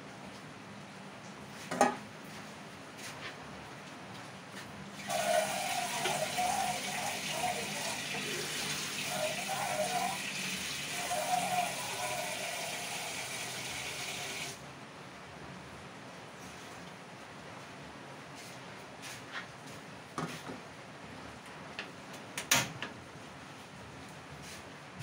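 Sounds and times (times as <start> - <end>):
tap water running into pan: 5.0 - 14.6.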